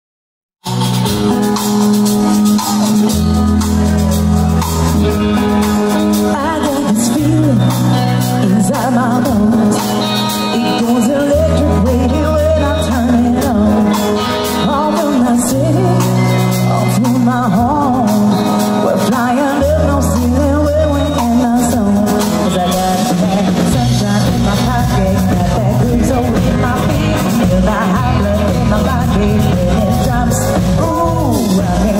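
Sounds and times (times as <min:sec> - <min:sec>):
deep bass line: 0:00.6 - 0:10.0, 0:22.8 - 0:31.9
drums: 0:00.6 - 0:31.9
electric guitars: 0:00.6 - 0:31.9
keyboard: 0:00.6 - 0:31.9
woman singing lead: 0:05.0 - 0:31.9.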